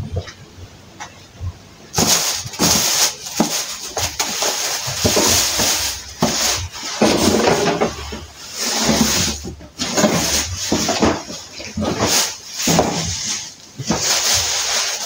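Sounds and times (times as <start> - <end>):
plastic garbage bag crinkling: 1.8 - 15.0.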